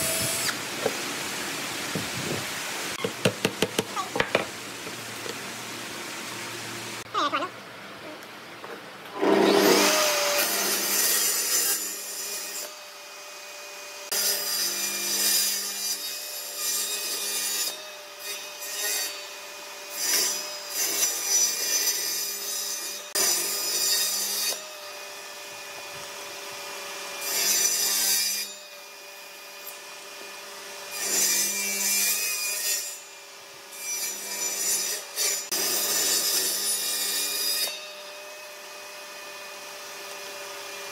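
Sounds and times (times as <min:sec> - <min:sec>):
table saw motor whine: 0:00.0 - 0:00.6, 0:09.2 - 0:11.0, 0:37.7 - 0:40.9
saw blade cutting wood: 0:00.0 - 0:01.0, 0:09.2 - 0:40.9.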